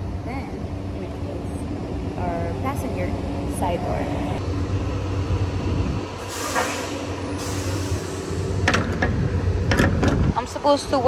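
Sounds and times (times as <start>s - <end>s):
low truck rumble: 0.0s - 11.0s.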